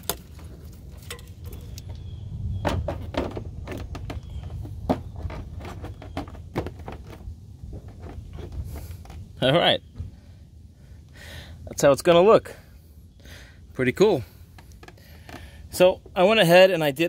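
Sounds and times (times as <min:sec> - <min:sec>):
plastic parts clicking and knocking: 0:02.6 - 0:09.2.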